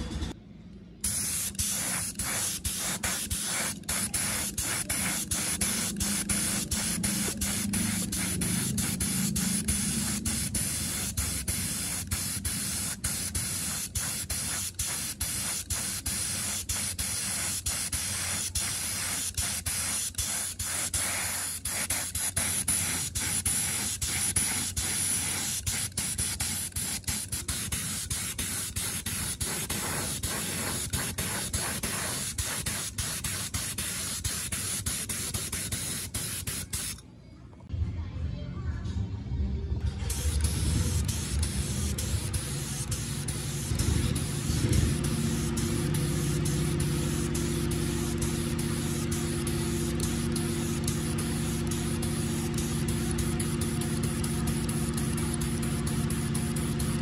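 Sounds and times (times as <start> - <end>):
paint spray gun hissing: 1.0 - 37.0, 40.0 - 57.0.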